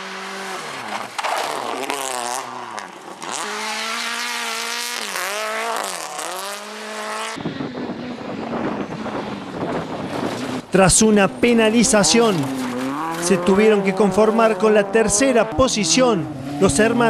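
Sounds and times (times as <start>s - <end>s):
car passing on gravel: 0.0s - 7.4s, 12.0s - 14.4s
car engine revving: 0.0s - 17.0s.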